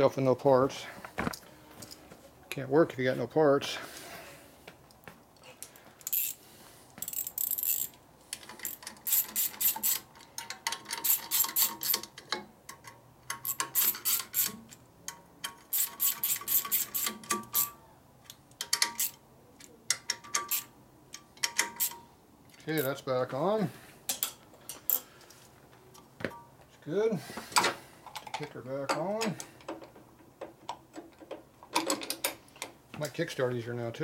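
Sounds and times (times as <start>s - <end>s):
hand ratchet clicking: 6.0s - 6.4s, 7.0s - 14.6s, 15.4s - 17.7s, 18.3s - 19.2s, 19.9s - 20.7s, 21.4s - 22.0s.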